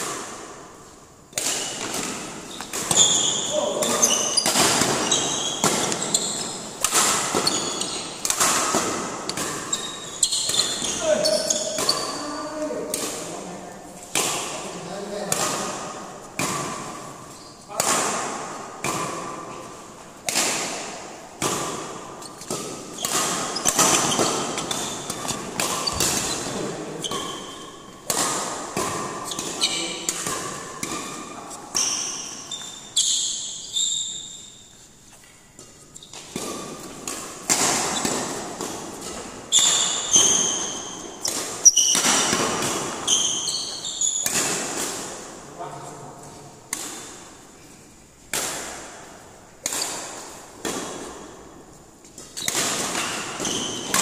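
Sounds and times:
rackets hitting shuttlecock: 0.0s - 34.6s, 35.6s - 45.5s, 46.2s - 47.6s, 48.2s - 54.0s
shoes squeaking on floor: 1.5s - 12.8s, 17.2s - 17.7s, 22.1s - 28.0s, 29.2s - 30.2s, 31.4s - 36.9s, 37.6s - 44.4s, 52.0s - 54.0s.

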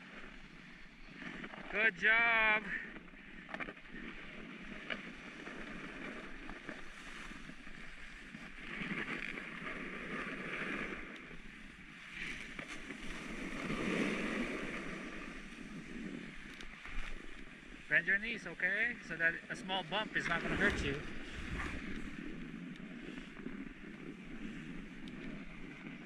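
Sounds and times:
edges scraping over snow: 3.9s - 26.0s
wind on microphone: 19.4s - 26.0s.

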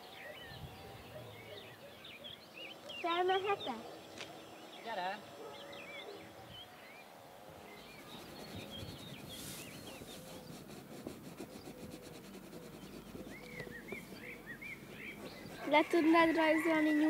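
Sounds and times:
small birds chirping: 0.0s - 17.0s
pencil scratching on paper: 7.8s - 17.0s.

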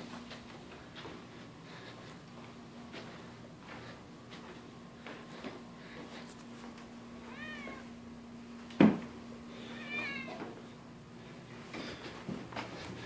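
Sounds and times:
cat meowing: 7.2s - 7.9s, 9.7s - 10.4s.

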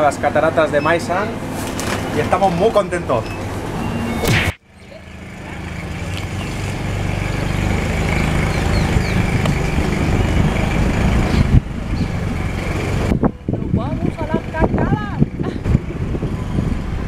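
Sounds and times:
wind and road noise: 0.0s - 17.0s
motor scooter engine running: 4.7s - 17.0s.

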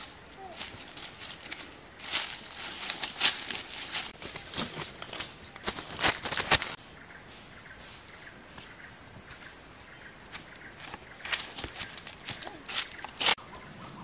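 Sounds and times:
footsteps in dry leaves: 0.0s - 6.8s, 10.8s - 13.4s.

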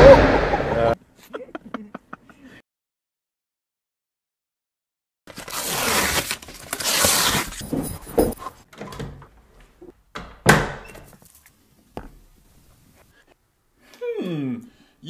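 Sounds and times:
door slamming: 10.2s - 11.1s.

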